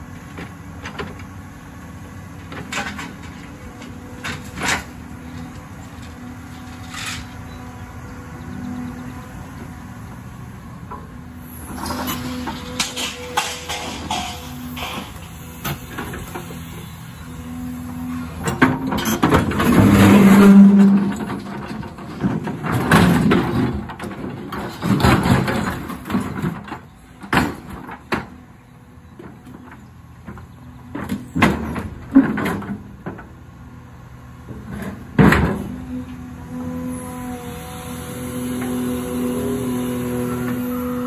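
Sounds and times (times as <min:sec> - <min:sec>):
excavator engine running: 0:00.0 - 0:41.0
steel bucket scraping concrete: 0:18.9 - 0:21.5.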